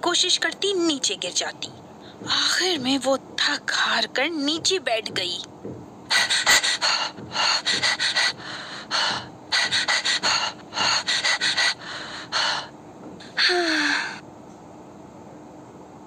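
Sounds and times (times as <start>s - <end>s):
animal panting heavily: 6.1s - 12.7s.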